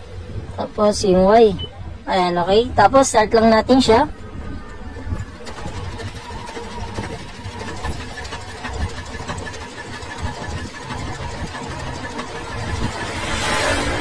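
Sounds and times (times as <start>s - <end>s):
sewing machine clattering: 4.8s - 13.3s.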